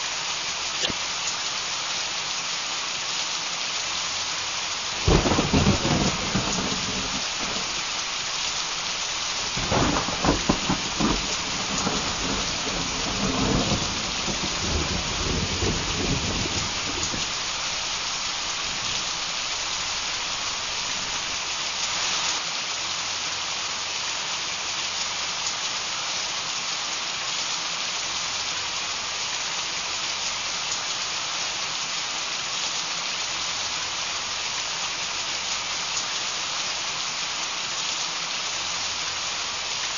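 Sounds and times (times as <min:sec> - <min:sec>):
heavy rain hissing: 0:00.0 - 0:39.9
thunder rolling: 0:05.0 - 0:08.1, 0:09.4 - 0:17.9.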